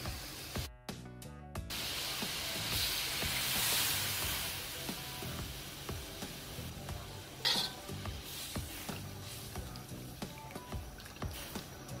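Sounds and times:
liquid hissing in hot wok: 0.0 - 0.7, 1.7 - 12.0
background music: 0.0 - 12.0.

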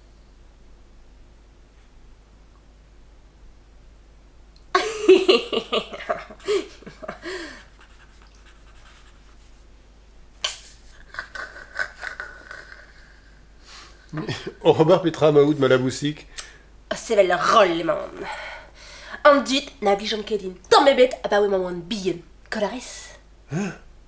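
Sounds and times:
breathy hissing: 6.3 - 9.2, 10.4 - 14.6, 18.2 - 19.2, 23.5 - 23.9
person crying out: 23.5 - 23.8.

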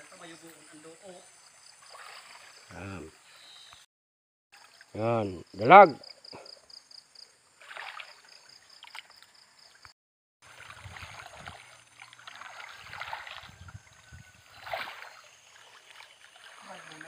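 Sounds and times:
light water sounds: 0.3 - 3.2, 4.6 - 5.4, 7.6 - 17.0
person wading through water: 1.8 - 2.8, 7.6 - 9.8, 10.4 - 17.0.

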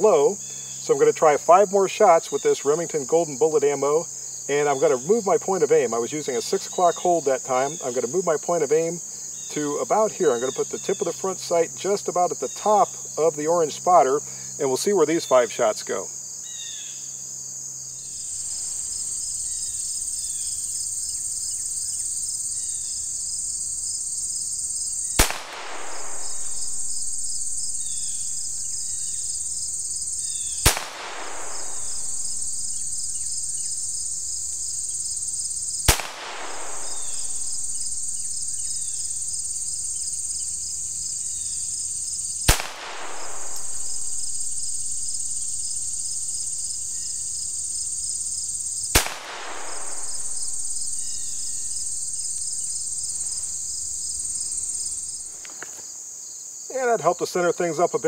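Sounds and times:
insect chirring: 0.0 - 58.0
pistol shots: 25.2 - 28.4, 30.6 - 32.9, 35.9 - 38.2, 42.5 - 44.6, 49.0 - 51.1.

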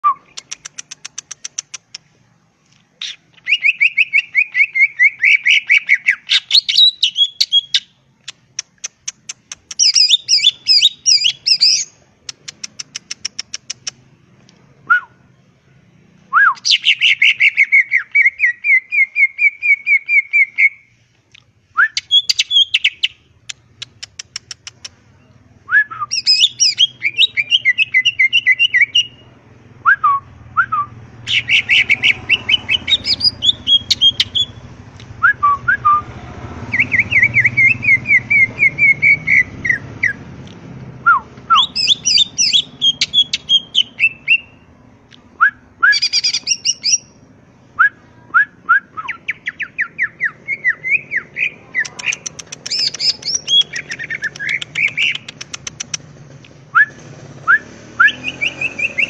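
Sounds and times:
bird singing trills and whistles: 3.0 - 8.0, 8.6 - 14.0, 16.3 - 20.9, 21.8 - 29.3, 29.9 - 34.6, 36.7 - 40.2, 41.1 - 44.7, 45.4 - 47.2, 47.8 - 56.0, 56.7 - 59.0.

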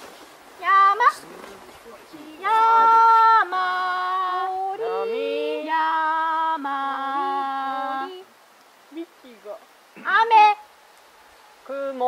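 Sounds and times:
people singing long cries: 2.1 - 8.4.

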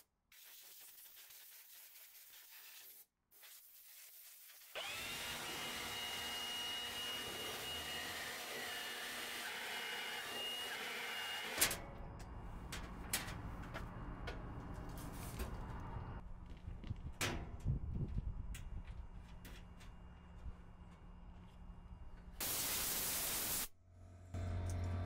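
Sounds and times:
leaf blower whining and blowing: 4.8 - 11.6.

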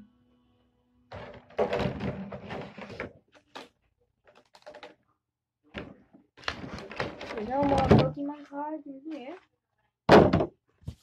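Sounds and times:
packaging rustling and bumping: 5.8 - 8.2.

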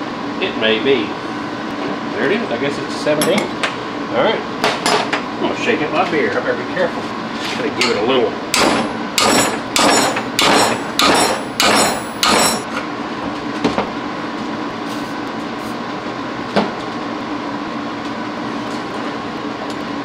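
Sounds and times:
steady hum: 0.0 - 13.3
hammer striking metal wrench: 7.8 - 12.6.

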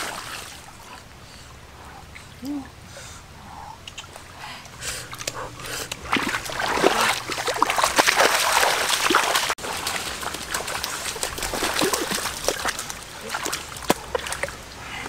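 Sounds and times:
water splashing and sloshing: 0.0 - 15.0.

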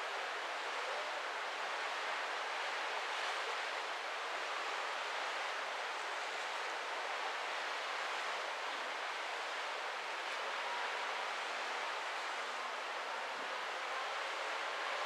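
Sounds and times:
wind: 0.0 - 15.0.

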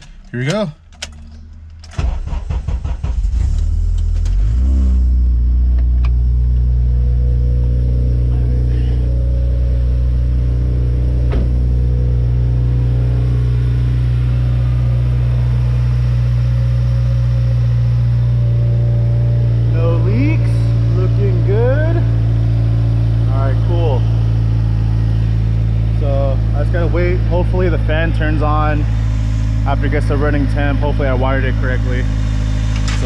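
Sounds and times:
car engine starter cranking: 0.0 - 4.7
car engine idling: 0.0 - 33.0.

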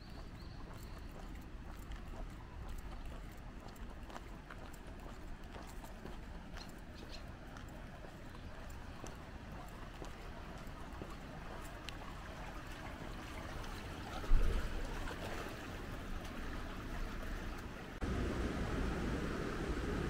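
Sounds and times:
outdoor background noise: 0.0 - 20.0.

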